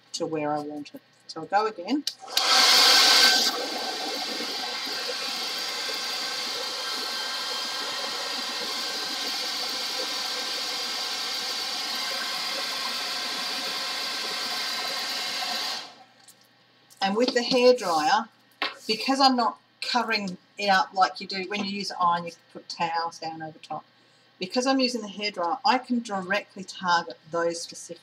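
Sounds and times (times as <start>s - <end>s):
hairdryer blowing: 2.2s - 16.0s.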